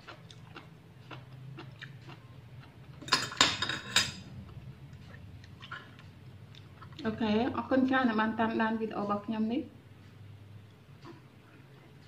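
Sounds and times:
utensils clinking on ceramic bowl: 3.0s - 4.2s.

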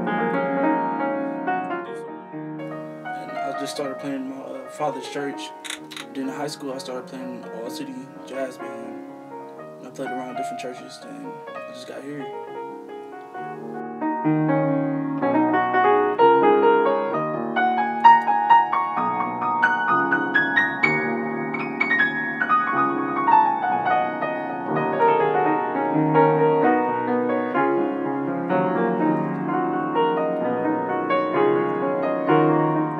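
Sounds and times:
solo grand piano playing: 0.0s - 32.9s.

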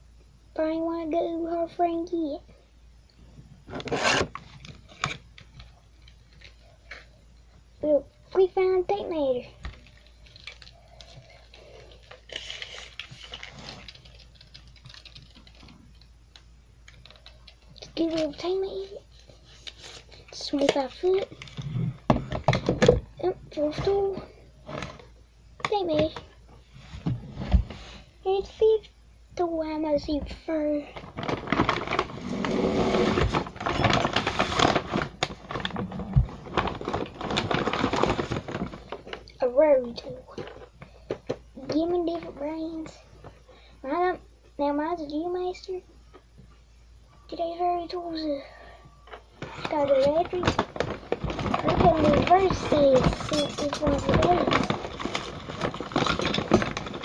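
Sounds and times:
rustling: 31.0s - 39.3s, 49.4s - 57.0s.

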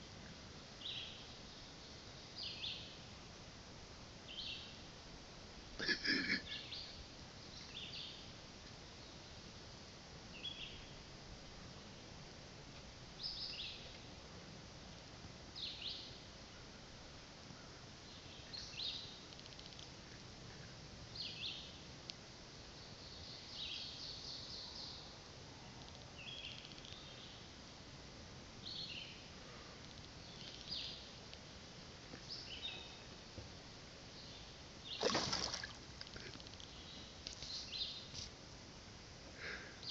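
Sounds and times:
faint outdoor hiss: 0.0s - 39.9s
pool water splashing: 35.0s - 35.9s.

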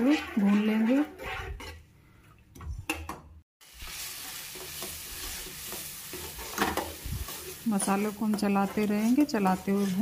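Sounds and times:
metal spatula scraping: 0.0s - 2.3s, 3.8s - 10.0s
paste sizzling in hot oil: 3.6s - 10.0s.

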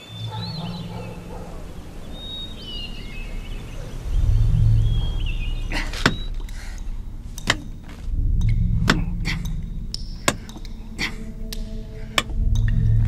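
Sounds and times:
low rumble: 0.0s - 13.0s
sharp knocks: 5.6s - 6.6s, 7.2s - 10.8s.

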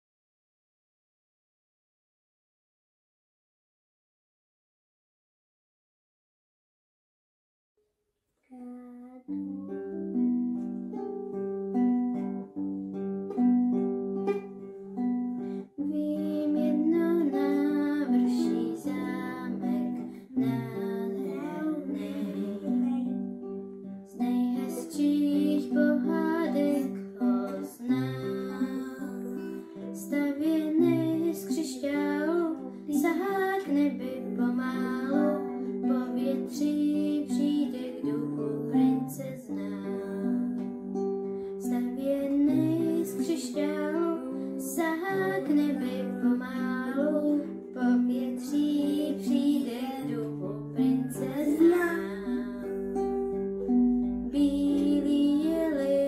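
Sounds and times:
acoustic guitars playing: 8.5s - 56.0s
person singing: 15.6s - 23.4s, 24.1s - 40.8s, 41.5s - 56.0s.

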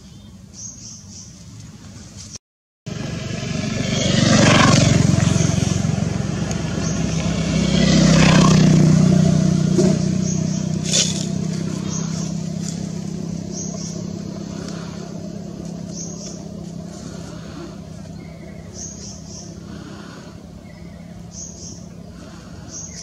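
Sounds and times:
vehicle engine passing: 2.9s - 23.0s.

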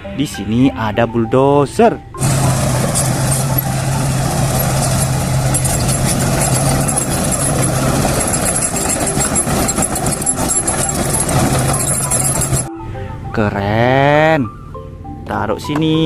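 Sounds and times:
bulldozer diesel engine running: 2.2s - 12.7s
steel tracks rattling: 2.2s - 12.7s.

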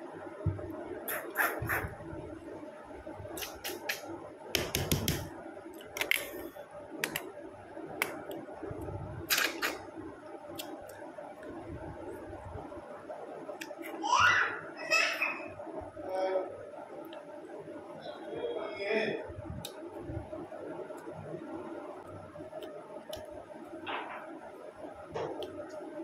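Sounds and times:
faint steady hum: 0.0s - 26.0s
wet lip and tongue smacks: 3.4s - 4.0s, 9.3s - 9.8s, 10.6s - 11.0s.

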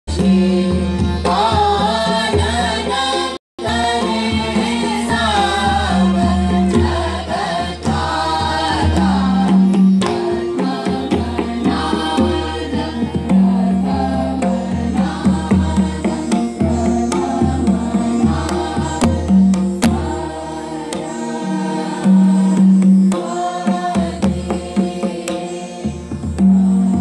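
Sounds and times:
group singing in unison: 0.1s - 27.0s
tanpura drone: 13.7s - 27.0s.

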